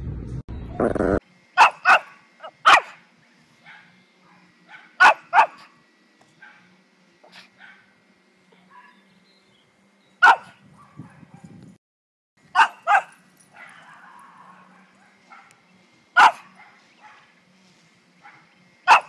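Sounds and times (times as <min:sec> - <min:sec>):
small dog barking: 0:01.6 - 0:03.0, 0:03.6 - 0:05.8, 0:06.4 - 0:08.0, 0:08.6 - 0:09.0, 0:10.2 - 0:11.6, 0:12.5 - 0:15.6, 0:16.2 - 0:17.4, 0:18.2 - 0:19.0.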